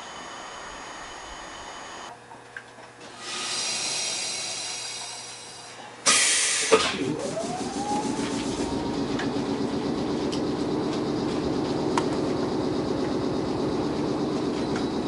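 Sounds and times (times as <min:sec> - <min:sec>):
motor whine rising: 0:00.0 - 0:02.1, 0:06.6 - 0:15.0
steady air hiss: 0:03.4 - 0:06.8
loud blast of air: 0:06.0 - 0:09.0.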